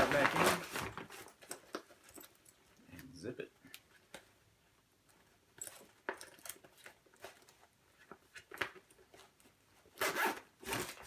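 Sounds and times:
zipper being pulled: 10.0s - 11.0s.

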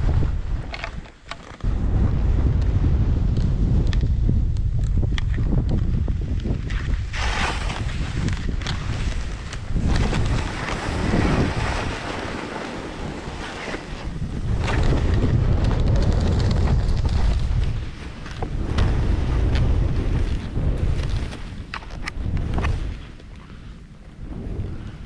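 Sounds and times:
wind buffeting microphone: 0.0s - 25.0s
skis hissing through snow: 6.6s - 15.1s.

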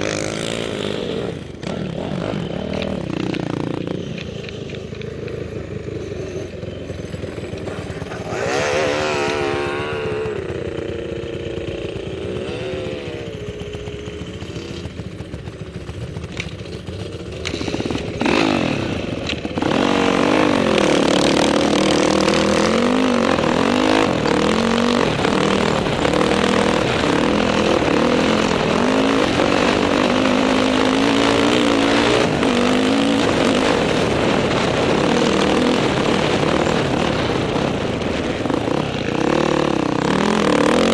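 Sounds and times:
dirt bike engine revving: 0.0s - 40.9s
rushing wind noise: 17.6s - 40.9s.

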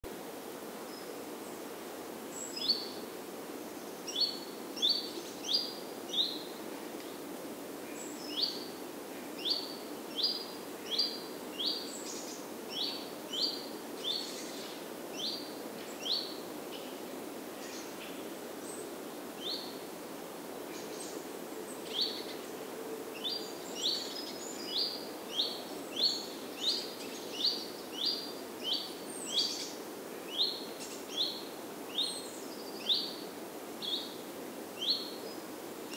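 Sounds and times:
low background noise: 0.0s - 35.9s
songbird chirping: 3.7s - 7.2s, 9.4s - 17.0s, 20.7s - 35.9s.

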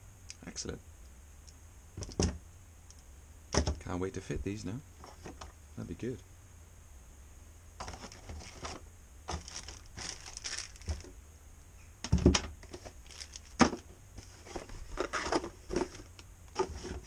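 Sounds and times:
cardboard packaging rustling: 7.8s - 11.1s, 12.1s - 17.0s.

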